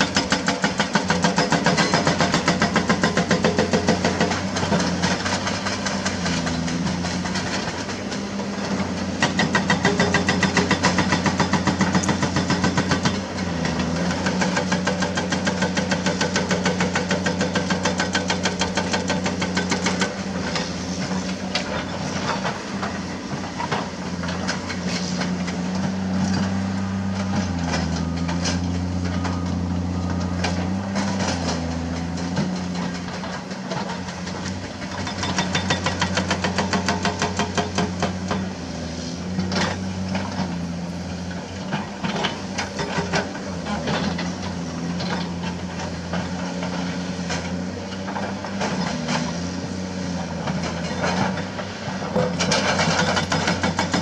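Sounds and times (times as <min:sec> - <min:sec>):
hydraulic rock breaker hammering: 0:00.0 - 0:29.7, 0:30.4 - 0:38.7, 0:50.2 - 0:54.0
diesel engines running: 0:00.0 - 0:54.0.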